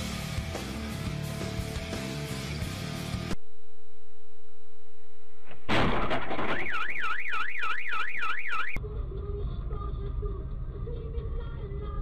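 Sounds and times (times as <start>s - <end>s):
warbling electronic alarm: 6.2s - 8.8s
low road noise: 7.4s - 12.0s.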